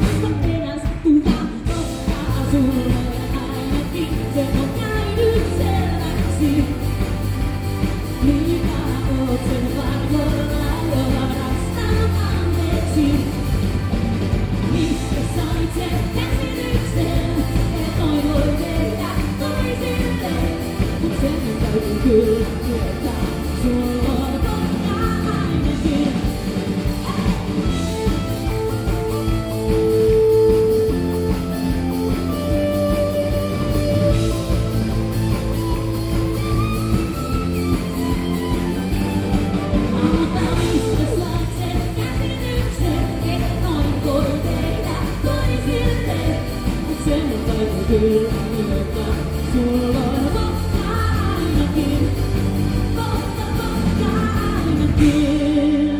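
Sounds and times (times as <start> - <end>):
woman singing into microphone: 0.0 - 7.1, 8.1 - 13.6, 14.7 - 28.3, 38.4 - 55.9
pop-rock band playing: 0.0 - 55.9.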